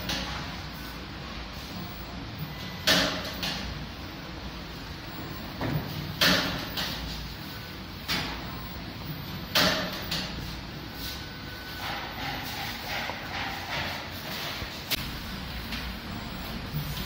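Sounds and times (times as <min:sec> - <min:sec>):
machine hum: 0:00.0 - 0:17.0.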